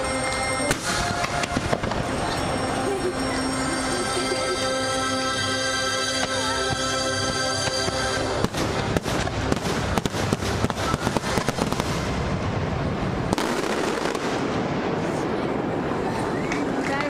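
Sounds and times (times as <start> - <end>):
fireworks bangs and crackles: 0.0 - 2.9, 6.1 - 17.0
loud show music: 0.0 - 11.8.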